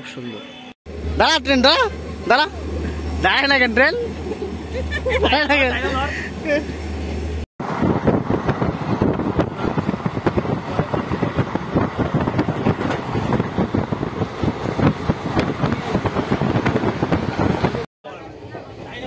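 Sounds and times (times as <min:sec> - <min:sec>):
train coach rattling: 0:01.0 - 0:17.8
train wheels clattering on rails: 0:08.4 - 0:17.8.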